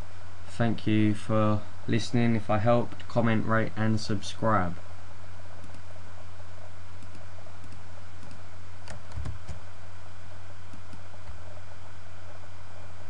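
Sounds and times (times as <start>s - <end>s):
electrical hum and hiss: 0.0s - 13.0s
keyboard and mouse clicks: 7.0s - 9.6s.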